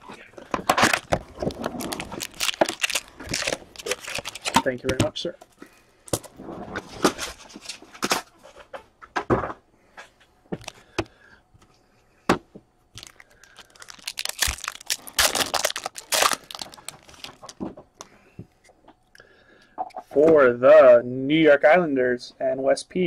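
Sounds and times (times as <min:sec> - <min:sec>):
card pack wrapper tearing: 0:00.8 - 0:05.0, 0:13.0 - 0:17.6.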